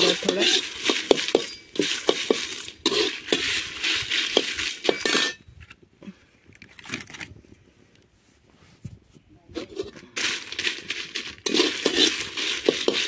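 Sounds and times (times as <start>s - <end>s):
metal spatula scraping a pan: 0.0s - 5.4s, 9.6s - 13.0s.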